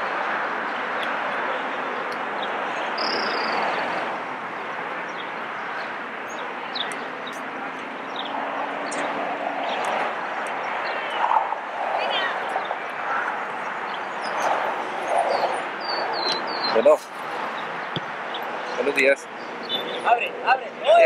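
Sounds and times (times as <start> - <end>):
rushing outdoor noise: 0.0 - 21.0
bird chirps: 3.0 - 3.6, 19.6 - 20.1.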